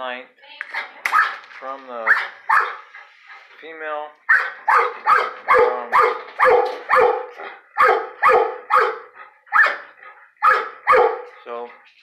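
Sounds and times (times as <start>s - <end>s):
dog barking sharply: 0.7s - 1.4s, 2.0s - 2.8s, 4.3s - 9.8s, 10.4s - 11.3s.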